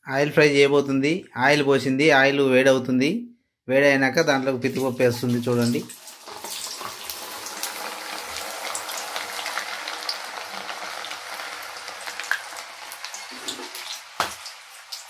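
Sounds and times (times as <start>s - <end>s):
beans sizzling in hot oil: 5.9s - 15.0s.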